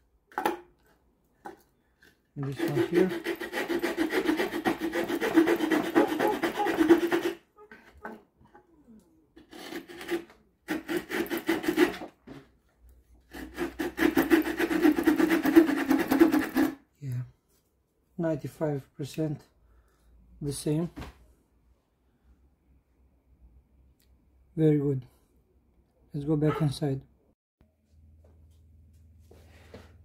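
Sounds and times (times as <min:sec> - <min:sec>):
small saw rasping through wood: 0:02.4 - 0:08.2, 0:09.4 - 0:12.4, 0:13.2 - 0:16.8.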